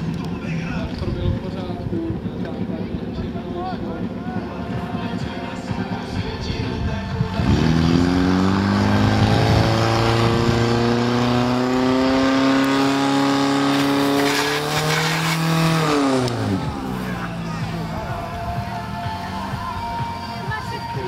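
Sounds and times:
pump engine revving: 7.4 - 18.3.

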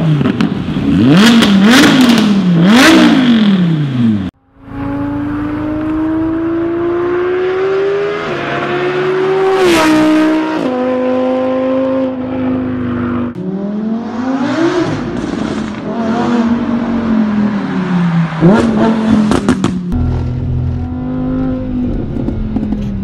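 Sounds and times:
car engine revving: 0.0 - 23.0
sports car passing at speed: 4.6 - 22.9.

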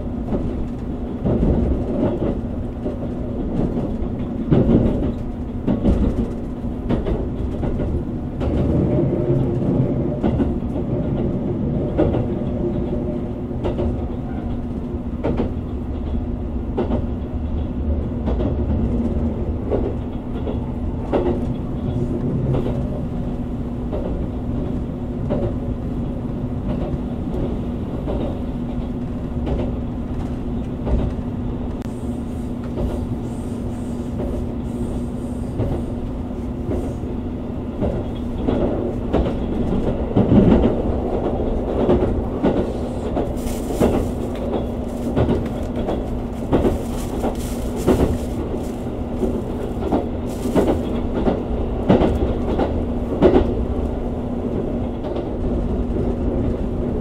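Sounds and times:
train wheels rumbling on rail: 0.0 - 57.0
track knocks: 0.2 - 25.8, 37.7 - 53.9.

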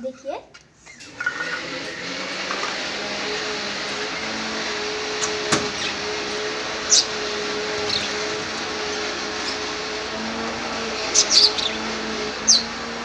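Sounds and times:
knock: 5.5 - 5.7
lovebird chirp: 11.1 - 12.8.

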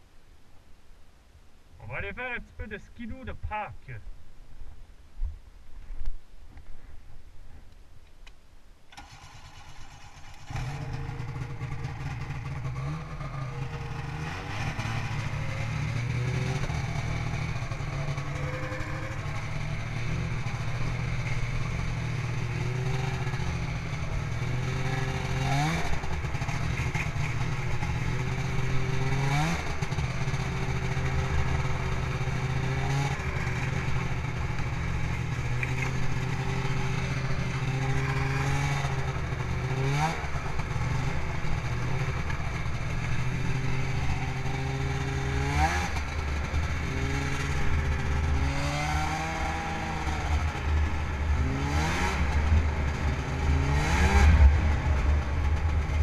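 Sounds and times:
snowmobile engine revving: 8.9 - 56.0.

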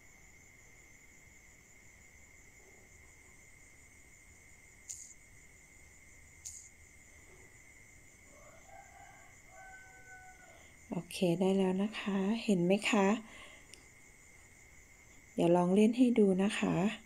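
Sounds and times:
insects chirring: 0.0 - 17.0
faint clicks: 4.8 - 5.2, 6.4 - 6.7, 13.7 - 13.9.

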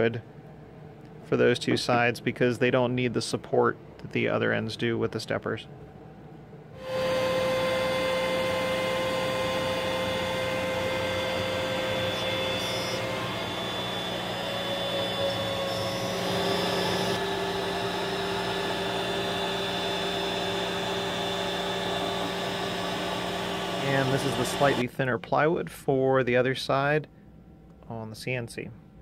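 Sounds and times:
vacuum dust collector: 6.8 - 24.8
wood router whining: 6.8 - 24.8.

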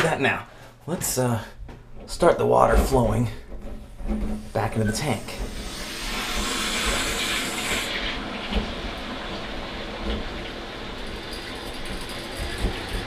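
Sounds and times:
water rushing through pipes: 4.2 - 13.0.

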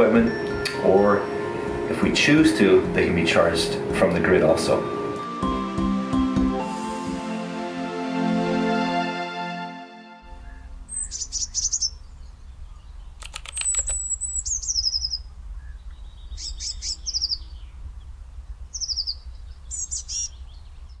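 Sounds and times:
steady low rumble: 0.0 - 5.3, 10.2 - 13.2
small birds chirping: 10.3 - 21.0.

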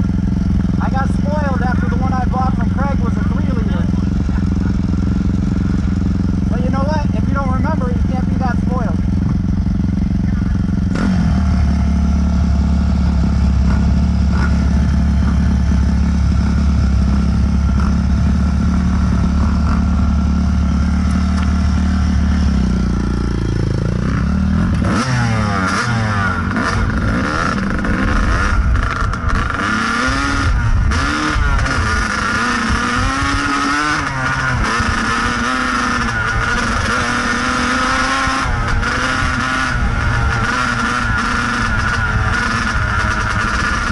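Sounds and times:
dirt bike engine idling and revving: 0.0 - 43.9
clatter: 13.2 - 21.9, 23.5 - 43.9.

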